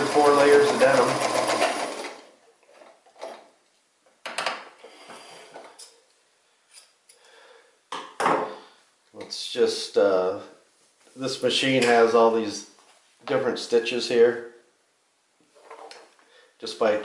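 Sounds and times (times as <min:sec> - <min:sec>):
sewing machine running: 0:00.0 - 0:02.3.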